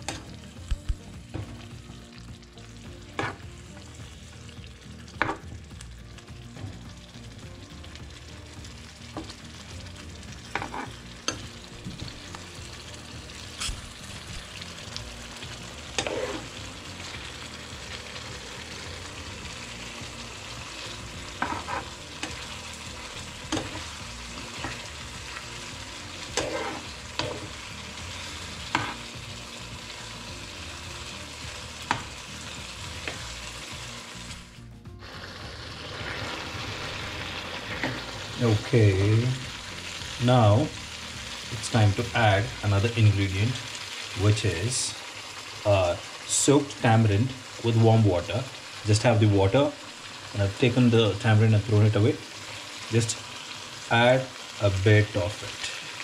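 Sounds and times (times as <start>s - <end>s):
prawns sizzling in frying pan: 0.0s - 56.0s.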